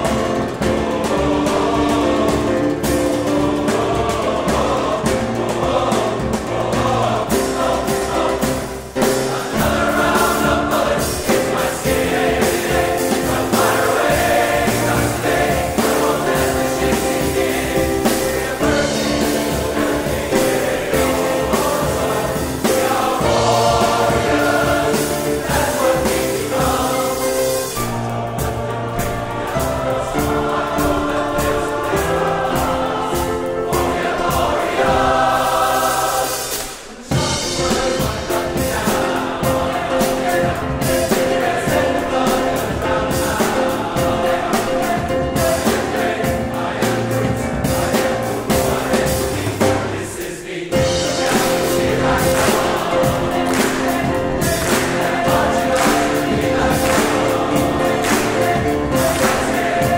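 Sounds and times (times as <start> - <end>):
men's chorus singing: 0.0 - 59.9.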